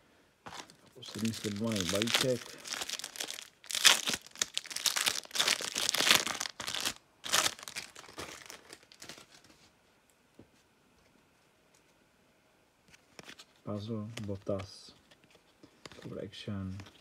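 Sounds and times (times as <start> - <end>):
wrapper tearing and crinkling: 0.5 - 9.4.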